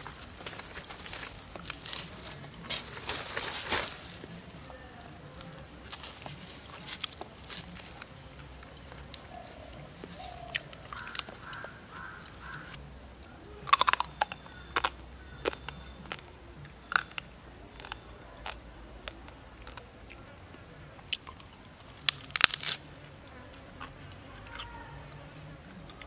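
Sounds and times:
wet clicks and smacks of chewing: 10.5 - 12.8, 13.7 - 20.2.

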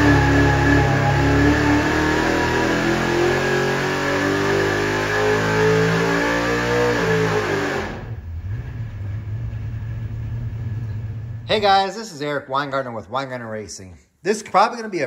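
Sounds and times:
engine running hard: 0.0 - 11.5.

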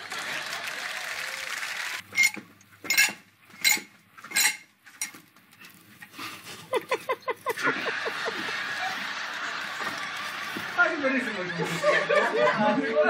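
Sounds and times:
person laughing: 6.5 - 10.7
studio audience laughter: 6.6 - 13.0.

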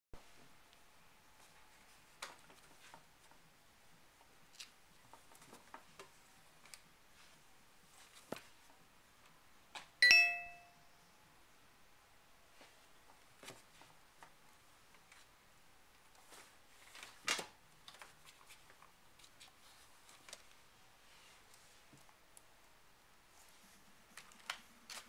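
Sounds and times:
bell-like ding: 10.0 - 10.8.

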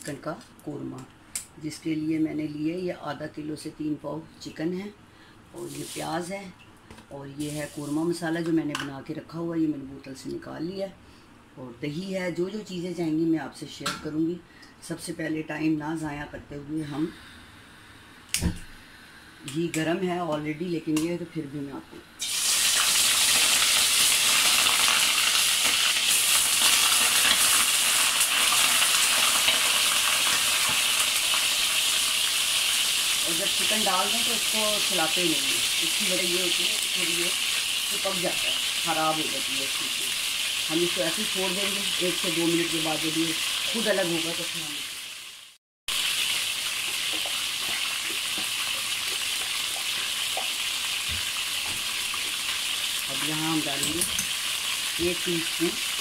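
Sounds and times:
chicken sizzling in hot fat: 22.2 - 56.0.

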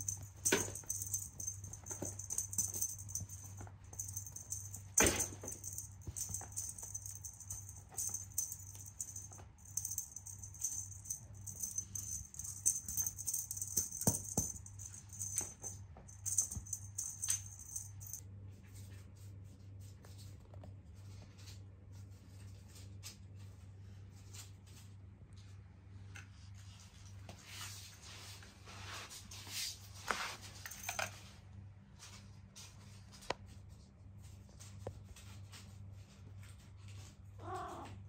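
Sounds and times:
cat toy jingling: 0.0 - 18.2
low steady hum: 0.0 - 38.0.

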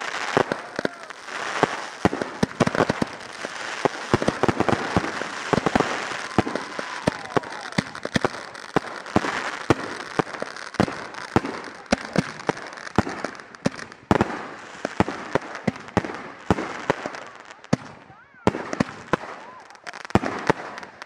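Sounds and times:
crackling hiss: 0.0 - 17.4
firework pops and bangs: 0.0 - 21.0.

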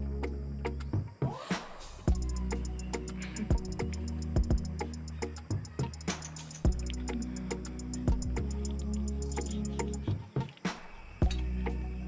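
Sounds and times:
low bass notes: 2.1 - 5.2, 6.7 - 9.3
fast ticking beat: 2.1 - 10.0.

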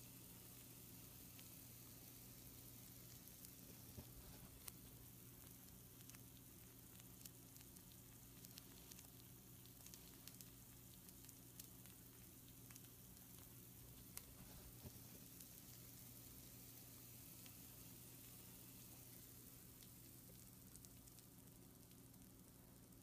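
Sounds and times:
food sizzling on baking sheet: 0.0 - 23.0
small pops and crackles: 0.0 - 23.0.

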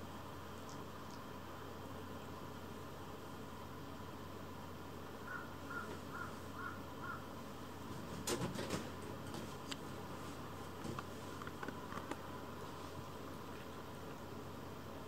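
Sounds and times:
kittens scrambling on a blanket: 7.8 - 13.7.

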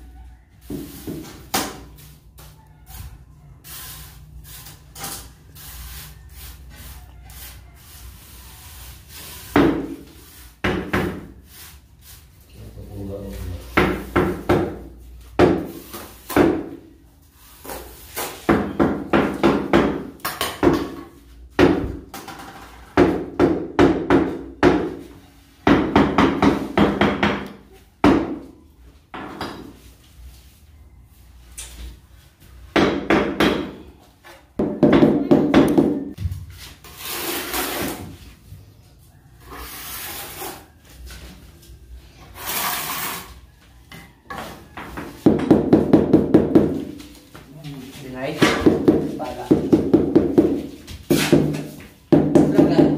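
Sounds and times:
trowel scraping wet mortar: 36.8 - 38.1, 39.5 - 40.8, 42.2 - 43.4.

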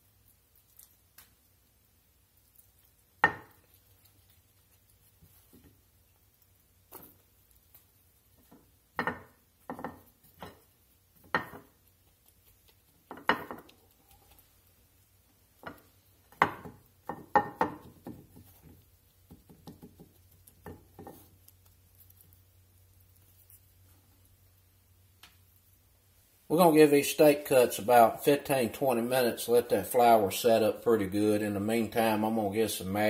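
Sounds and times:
hands patting meat in flour: 15.6 - 21.8.

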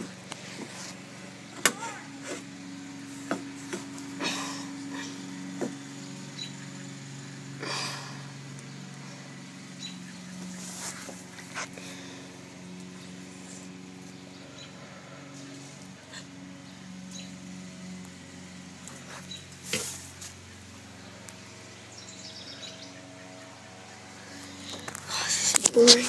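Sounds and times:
steady low hum: 0.0 - 26.0
short rustles: 10.4 - 11.8.

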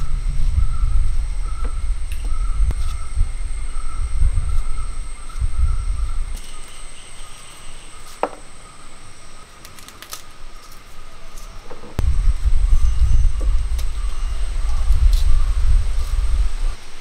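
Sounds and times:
loud low rumble: 0.0 - 6.4, 12.0 - 16.8
insect drone: 0.0 - 17.0.

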